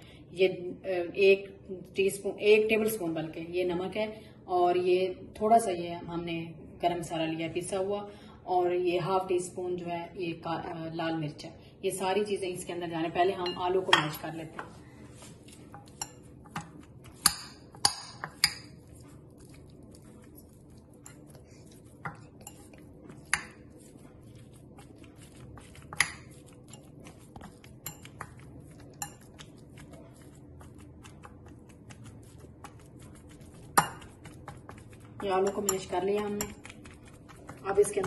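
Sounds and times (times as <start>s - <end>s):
whisk clinking against glass bowl: 15.8s - 18.8s, 25.2s - 30.4s, 31.1s - 38.0s.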